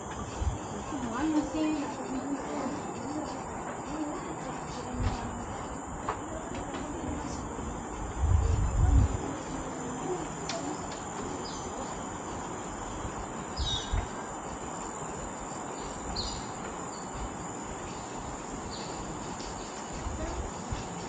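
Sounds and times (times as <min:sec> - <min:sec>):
footsteps on metal boardwalk: 0:00.0 - 0:21.0
insect drone: 0:00.0 - 0:21.0
bird chirps: 0:13.5 - 0:14.3, 0:15.7 - 0:17.2.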